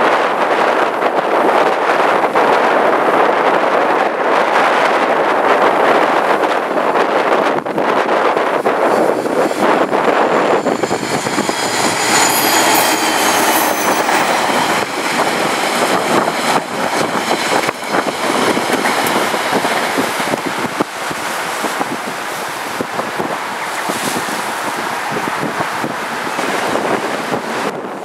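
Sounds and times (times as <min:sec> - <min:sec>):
train wheels rushing on rails: 0:00.0 - 0:28.0
faint high squeal: 0:10.0 - 0:16.2.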